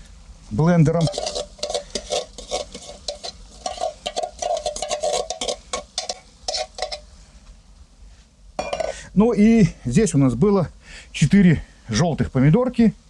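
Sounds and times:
metal spoon scraping in tin can: 0.8s - 7.1s, 8.6s - 9.0s.

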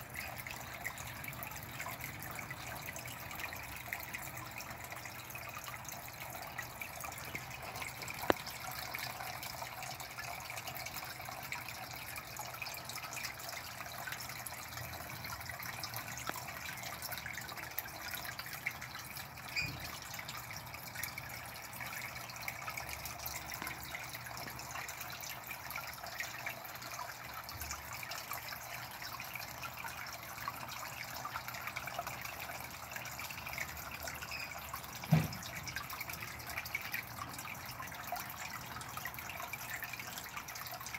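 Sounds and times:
water trickling into a pond: 0.0s - 40.9s
brief thump: 35.1s - 35.4s.

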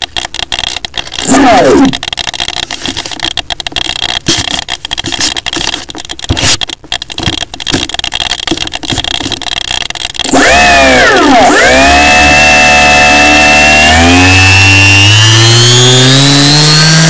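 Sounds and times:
model plane airframe crackling: 0.0s - 14.6s
propeller motor whine: 10.2s - 17.0s.

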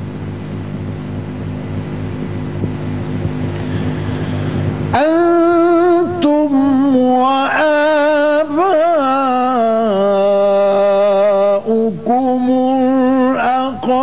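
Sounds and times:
man reciting melodically: 5.0s - 14.0s.

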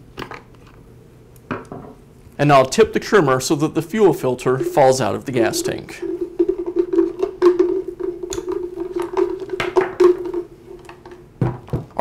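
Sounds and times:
fuel filter rattling in tank: 5.5s - 10.4s
knock on wooden workbench: 11.4s - 12.0s.

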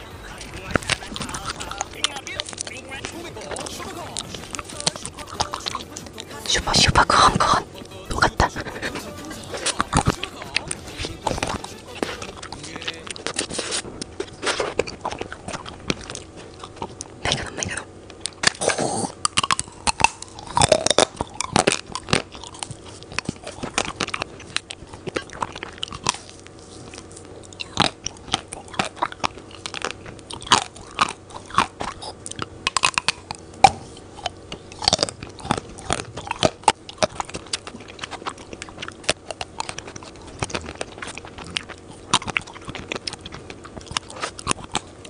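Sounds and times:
chocolate shell crunching: 9.3s - 45.0s.

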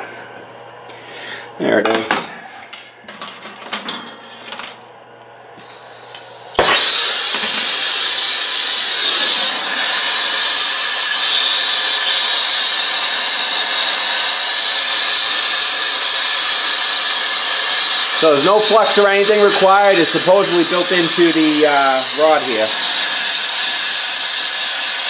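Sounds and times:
torch flame hissing: 5.6s - 25.0s
thin high whistle: 20.5s - 25.0s.

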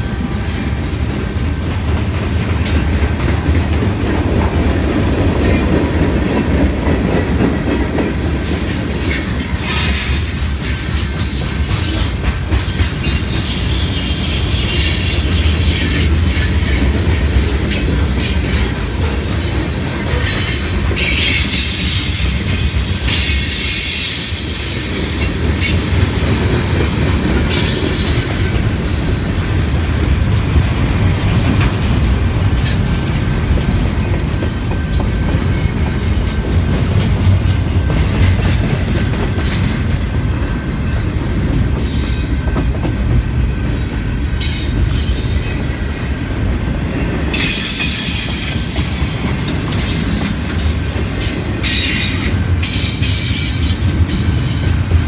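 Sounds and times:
freight train wheels rumbling: 0.0s - 55.0s
high-pitched wheel squeal: 9.7s - 11.5s.

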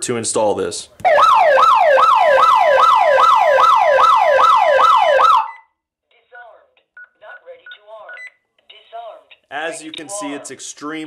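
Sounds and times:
warbling electronic siren: 1.1s - 5.7s
faint keypad beeps: 7.0s - 8.4s.

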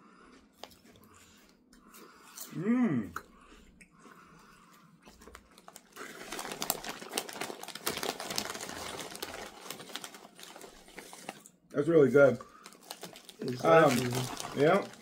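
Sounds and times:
chips crunching while chewing: 5.2s - 11.6s, 12.5s - 15.0s.

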